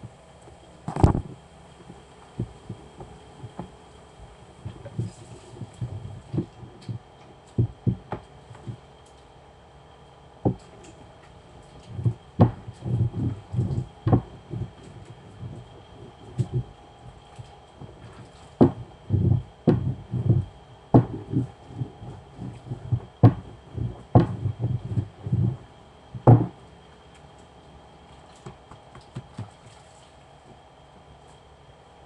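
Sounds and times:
rolling pin thumping on counter: 0:21.0 - 0:21.4, 0:26.2 - 0:26.5.

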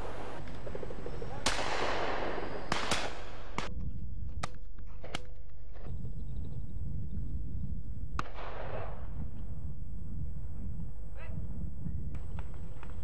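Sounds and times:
shotgun shots: 0:00.0 - 0:03.7, 0:08.2 - 0:09.0.

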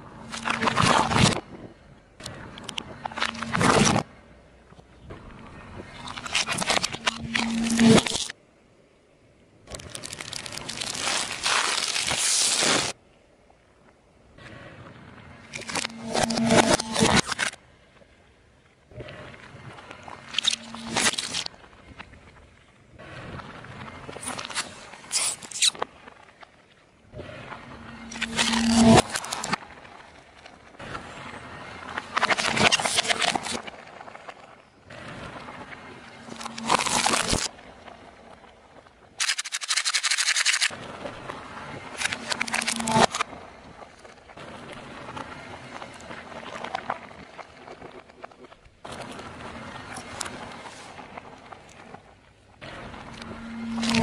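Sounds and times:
plastic bag crinkling and crunching: 0:00.3 - 0:01.4, 0:06.0 - 0:08.3, 0:09.7 - 0:13.0, 0:15.6 - 0:17.6, 0:20.3 - 0:21.5, 0:24.2 - 0:25.8, 0:28.1 - 0:29.6, 0:32.1 - 0:33.6, 0:36.3 - 0:37.5, 0:39.2 - 0:40.7, 0:42.0 - 0:43.2, 0:53.6 - 0:54.0.

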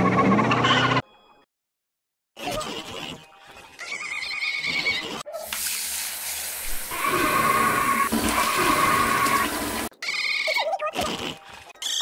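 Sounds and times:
toilet flushing: 0:05.4 - 0:09.9.

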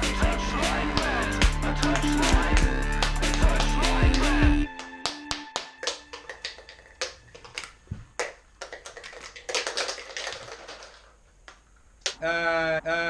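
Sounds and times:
sharp clicks and snaps: 0:05.6 - 0:12.2.

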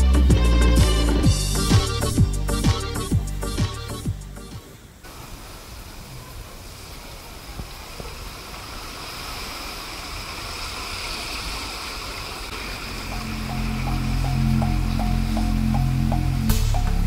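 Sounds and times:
floodwater sloshing around car wheels: 0:05.0 - 0:16.1.

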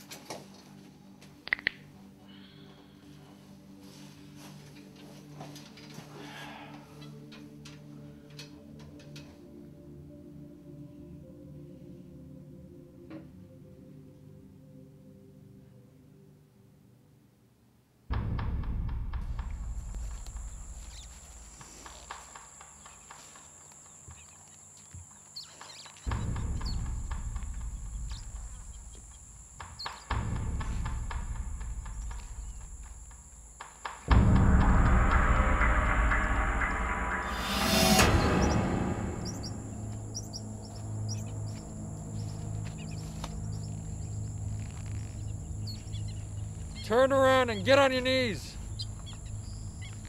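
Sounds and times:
deep low rumble: 0:18.1 - 0:21.6, 0:26.1 - 0:29.5, 0:30.2 - 0:33.4, 0:34.1 - 0:46.8
steady low hum: 0:18.1 - 0:50.0
steady high whine: 0:18.9 - 0:25.4, 0:26.0 - 0:50.0
bird chirps: 0:20.4 - 0:21.5, 0:22.8 - 0:30.2, 0:31.8 - 0:33.1, 0:34.8 - 0:50.0.

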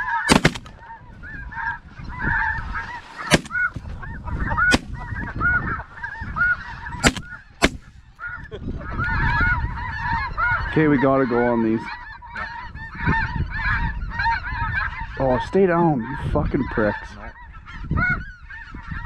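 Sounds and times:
geese yelping calls: 0:00.0 - 0:19.0
shotgun shots: 0:00.3 - 0:00.8, 0:03.3 - 0:03.7, 0:04.7 - 0:05.0, 0:07.0 - 0:07.8.

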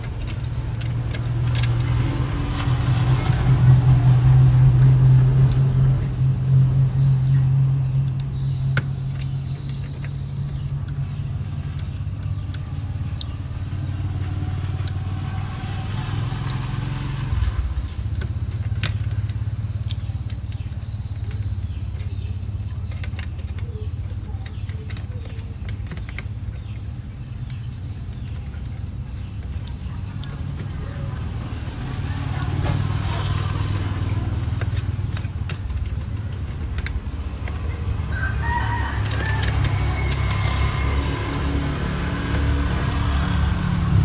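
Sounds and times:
clicks and rustles of handling parts: 0:00.0 - 0:03.8, 0:17.8 - 0:30.8, 0:33.6 - 0:38.0
low mechanical drone: 0:00.0 - 0:44.0.

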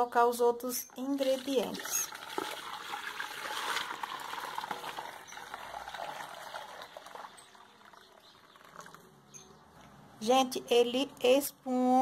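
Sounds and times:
liquid soap pouring and splashing: 0:01.0 - 0:09.0.

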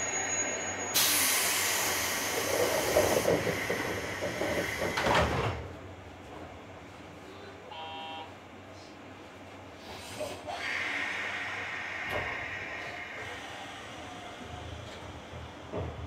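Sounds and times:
air hissing from train doors: 0:00.9 - 0:05.6, 0:09.8 - 0:15.5.

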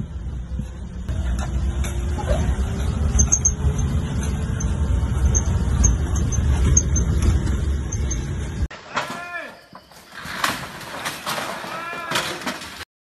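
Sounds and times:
vehicle engine low rumble: 0:00.0 - 0:08.7.

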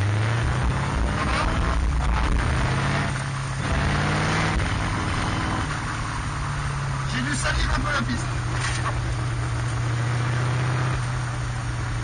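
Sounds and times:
race car engine running: 0:00.0 - 0:12.0.

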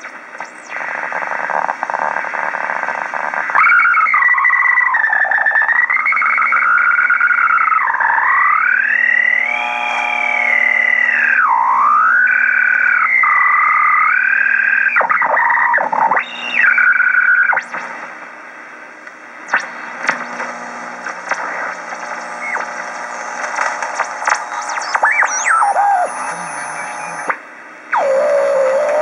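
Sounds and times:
radio band hiss: 0:00.0 - 0:06.7, 0:19.3 - 0:29.0
radio heterodyne whistle: 0:03.4 - 0:17.8, 0:24.0 - 0:27.3, 0:27.9 - 0:29.0.

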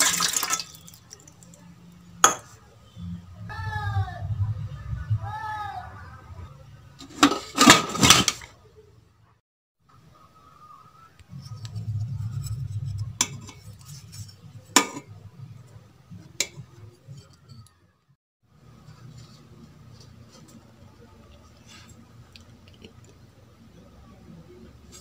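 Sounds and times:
low steady hum: 0:03.2 - 0:06.8, 0:11.2 - 0:16.5
metal cookware clanking: 0:07.0 - 0:08.5, 0:14.7 - 0:15.1.

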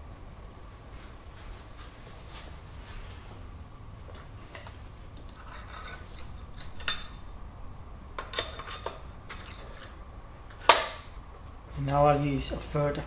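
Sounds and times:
metallic clinks of steel parts: 0:05.3 - 0:07.4, 0:08.2 - 0:10.0.

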